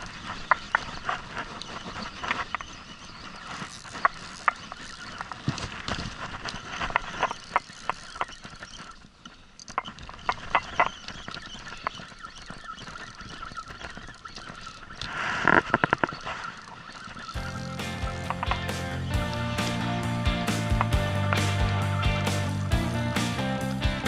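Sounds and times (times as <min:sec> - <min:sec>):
reel and rod clicks and knocks: 0:00.2 - 0:19.4
fishing reel winding: 0:03.6 - 0:05.3.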